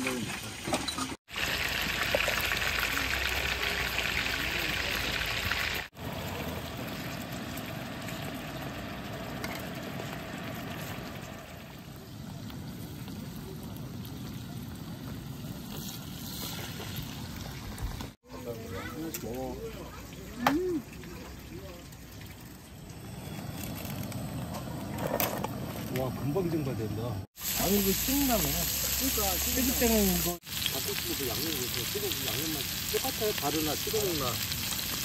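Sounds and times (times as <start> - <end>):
meat sizzling on griddle pan: 1.3 - 11.4, 27.4 - 35.0.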